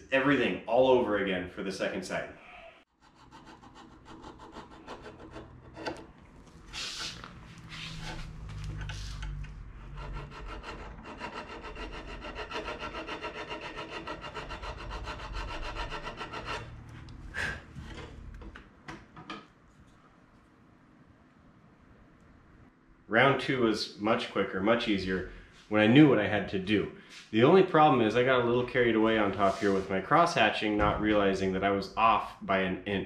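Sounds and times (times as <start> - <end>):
file scraping metal: 3.0 - 6.2, 6.8 - 16.9.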